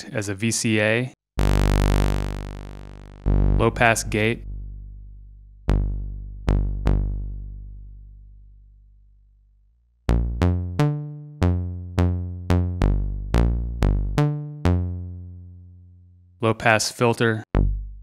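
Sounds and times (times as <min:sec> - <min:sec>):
plucked synthesizer pings: 0:10.1 - 0:15.1.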